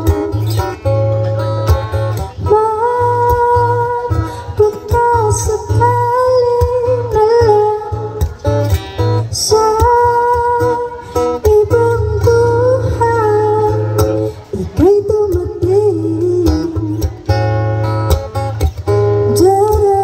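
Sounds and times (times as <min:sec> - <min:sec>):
woman singing: 0:00.0 - 0:00.8, 0:02.2 - 0:08.4, 0:09.3 - 0:17.4, 0:19.2 - 0:20.0
acoustic guitar: 0:00.0 - 0:20.0.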